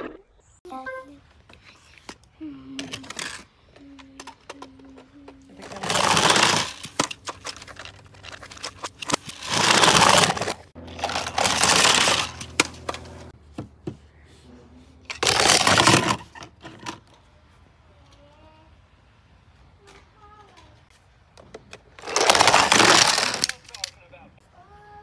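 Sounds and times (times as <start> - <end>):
plastic toys clicking and clattering: 2.0 - 13.1, 15.0 - 17.2, 21.3 - 24.0
toy cars rolling down plastic ramp: 2.8 - 13.2, 15.1 - 17.2, 21.4 - 23.9.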